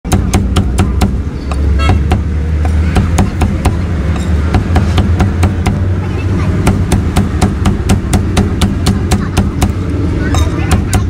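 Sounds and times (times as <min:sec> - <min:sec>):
cleaver chopping on wooden block: 0:00.1 - 0:05.8, 0:06.6 - 0:09.8
low engine rumble: 0:00.1 - 0:11.0.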